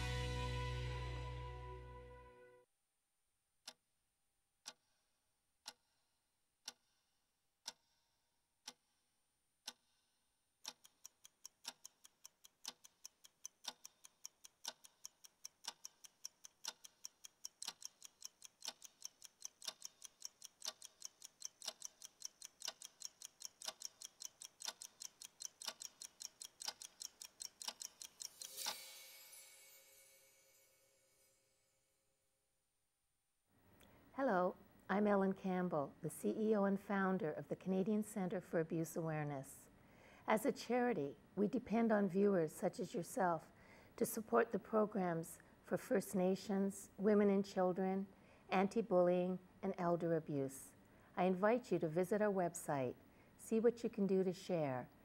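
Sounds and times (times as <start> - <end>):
clock ticking: 4.6 - 5.0, 6.6 - 7.0, 7.6 - 8.0, 8.6 - 9.0, 9.6 - 10.0, 10.6 - 28.9.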